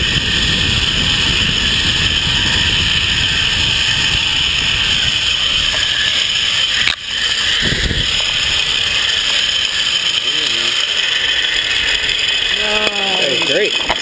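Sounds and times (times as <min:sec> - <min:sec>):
wind rumbling on microphone: 0:00.0 - 0:10.0
zipline pulleys whirring on cable: 0:00.0 - 0:14.0.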